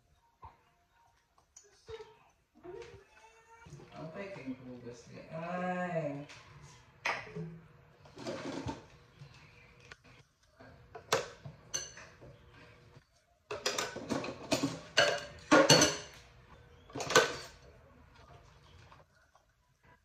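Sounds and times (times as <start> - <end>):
dishes clattering in metal sink: 11.0 - 12.3, 13.5 - 16.3, 16.9 - 17.6.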